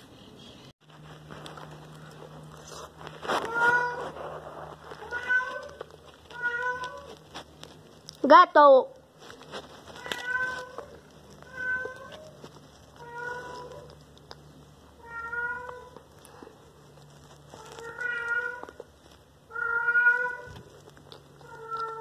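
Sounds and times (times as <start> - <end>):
cat meowing: 3.4 - 4.2, 5.0 - 7.2, 10.0 - 13.9, 15.0 - 16.1, 17.6 - 18.9, 19.5 - 20.8, 21.4 - 22.0.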